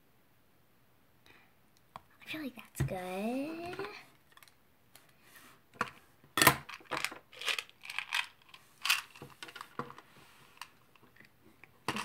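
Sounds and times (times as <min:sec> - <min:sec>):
makeup items clicking and clattering: 0:05.8 - 0:10.0.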